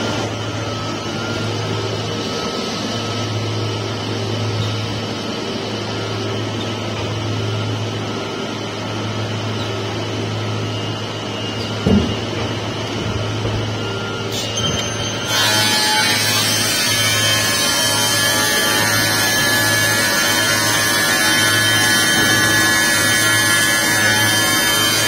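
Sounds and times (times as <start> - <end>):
saw machine motor hum: 15.1 - 25.0.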